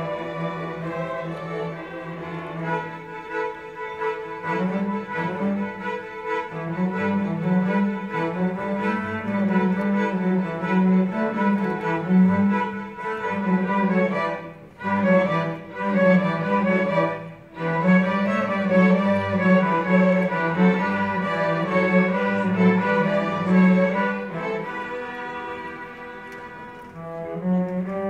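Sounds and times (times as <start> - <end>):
string orchestra bowed notes: 0.0 - 28.0.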